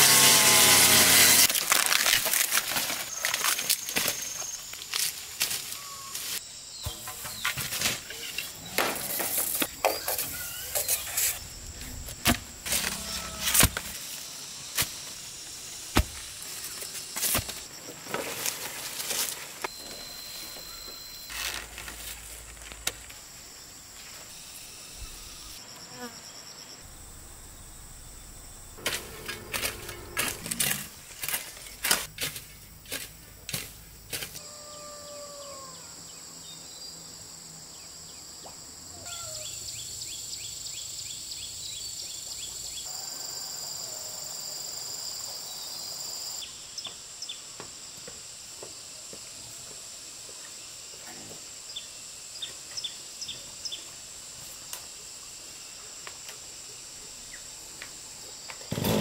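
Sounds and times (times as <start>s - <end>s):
insects droning: 0.2s - 59.0s
rustles: 1.4s - 25.6s.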